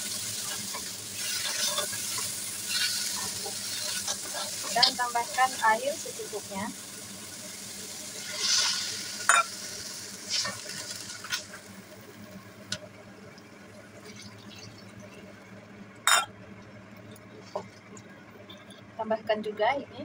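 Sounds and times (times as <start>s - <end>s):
water hissing in hot oil: 0.0s - 12.8s, 13.6s - 15.4s
meat sizzling in a wok: 0.0s - 15.3s.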